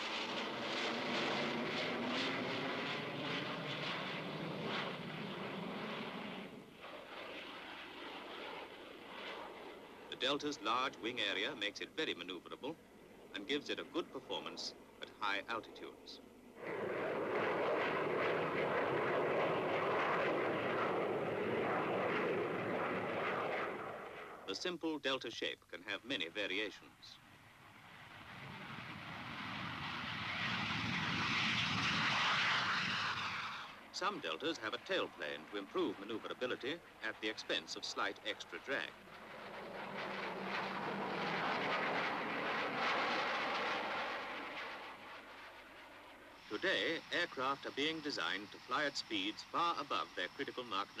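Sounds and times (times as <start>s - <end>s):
jet aircraft flying overhead: 0.0s - 24.7s, 26.0s - 51.0s.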